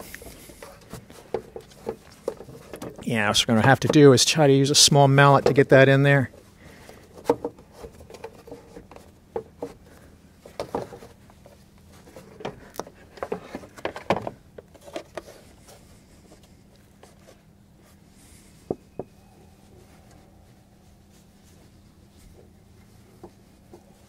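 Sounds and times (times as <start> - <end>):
plastic housing clattering and knocking: 0.7 - 3.1, 7.0 - 11.2, 12.1 - 15.4.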